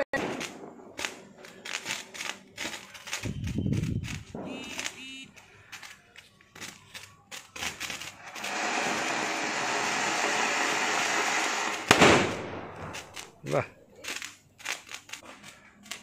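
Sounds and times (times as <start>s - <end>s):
crackling pops: 0.0s - 16.0s
firework fountain hissing: 0.0s - 16.0s
loud bang: 4.3s - 5.1s, 8.4s - 13.2s.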